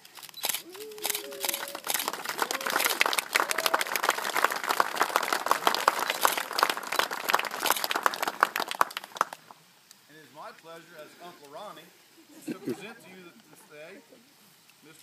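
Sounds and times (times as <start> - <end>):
crowd applauding: 0.6 - 9.6.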